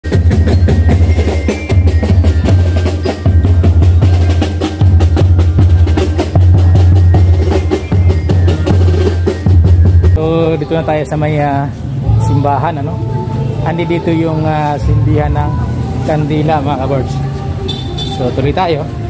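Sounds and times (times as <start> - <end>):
drum-heavy music: 0.0 - 11.4.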